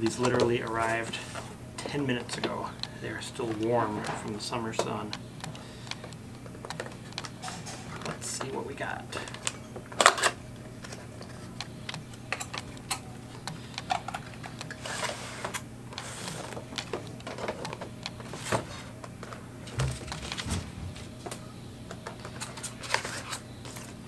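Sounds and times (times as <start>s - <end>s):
plastic box clicking and tapping: 1.8s - 8.5s.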